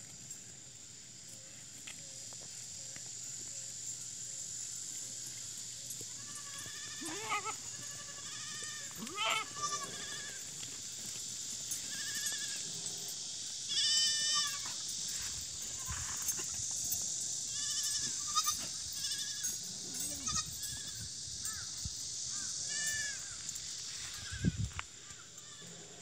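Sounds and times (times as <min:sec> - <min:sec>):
goats bleating: 0:06.2 - 0:10.5, 0:11.8 - 0:12.6, 0:13.7 - 0:14.7, 0:17.5 - 0:20.8.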